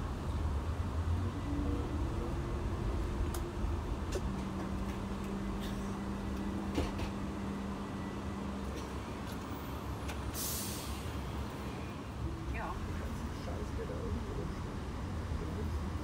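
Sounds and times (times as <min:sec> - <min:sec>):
train rumble inside coach: 0:00.0 - 0:16.0
short hiss: 0:10.3 - 0:11.1.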